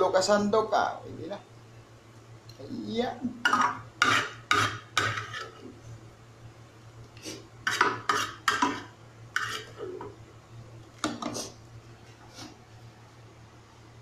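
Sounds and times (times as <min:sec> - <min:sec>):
ladle scraping a frying pan: 0:03.5 - 0:05.7, 0:07.7 - 0:10.0.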